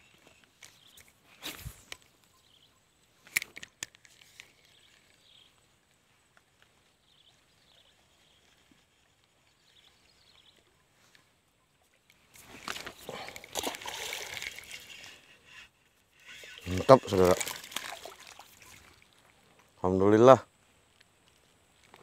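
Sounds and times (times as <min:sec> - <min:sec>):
camera handling rustle and bump: 0:00.0 - 0:02.1, 0:03.2 - 0:05.4, 0:12.1 - 0:15.0.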